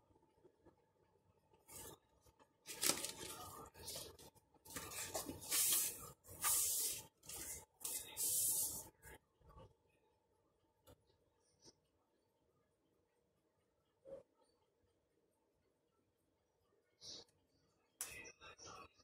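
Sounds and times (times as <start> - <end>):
paper packaging rustling: 2.6 - 8.3.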